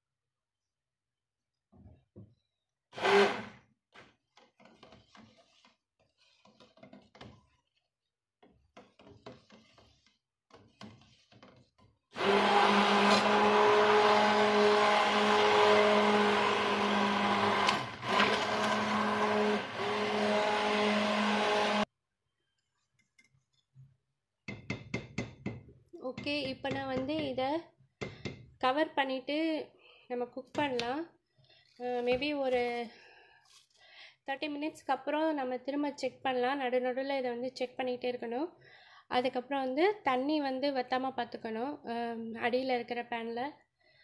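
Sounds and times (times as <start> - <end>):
stick blender running: 3.0 - 3.6, 12.2 - 21.9.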